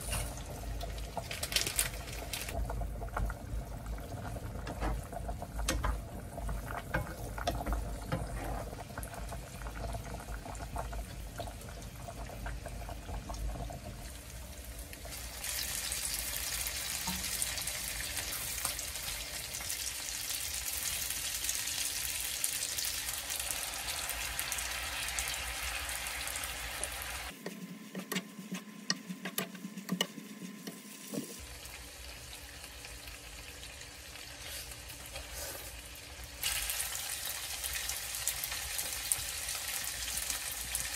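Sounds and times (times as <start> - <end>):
oil sizzling in a frying pan: 10.3 - 27.4, 30.8 - 40.9.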